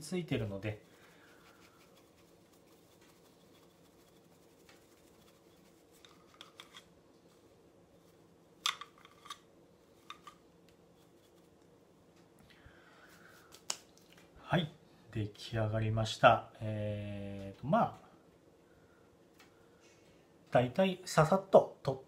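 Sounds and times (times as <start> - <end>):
brush clicking and tapping: 1.3 - 6.8.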